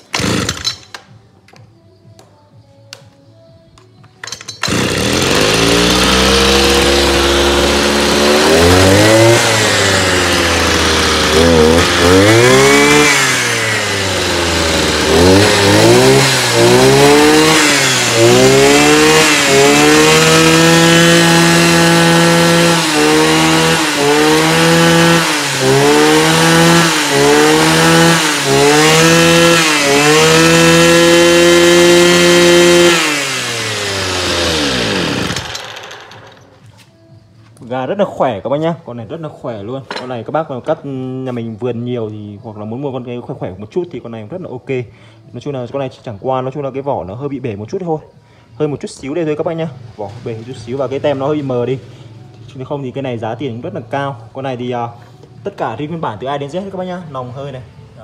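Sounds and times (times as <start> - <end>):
brush cutter engine revving: 0.0 - 0.8, 4.6 - 36.5.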